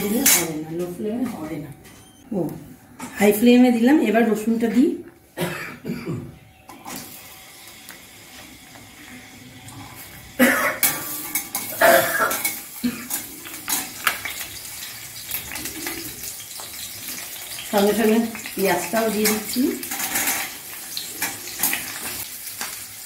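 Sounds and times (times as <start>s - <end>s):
oil sizzling: 6.7s - 23.0s
spatula scraping and clinking on pan: 10.8s - 14.4s, 19.2s - 22.2s.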